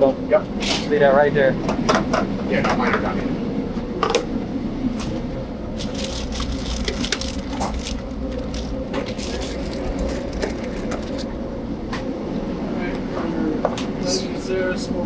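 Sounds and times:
kitchen hum: 0.0 - 14.2
plastic bags rustling: 5.8 - 11.2.

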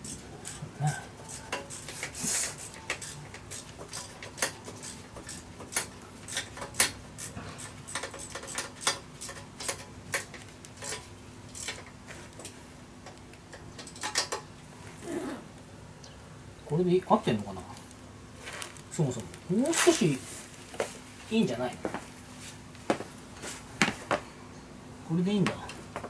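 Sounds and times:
hand tools clicking on metal: 0.0 - 14.5.

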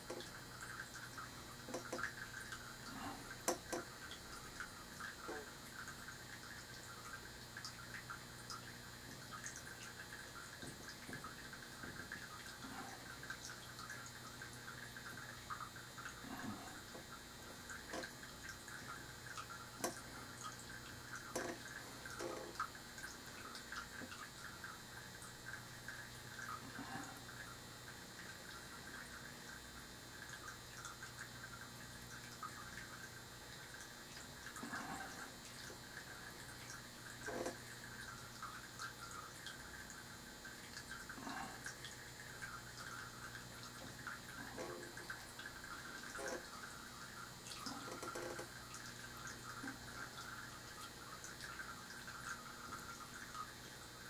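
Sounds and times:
small ticks: 0.0 - 27.6, 40.7 - 53.5
steady low hum: 0.0 - 54.0.

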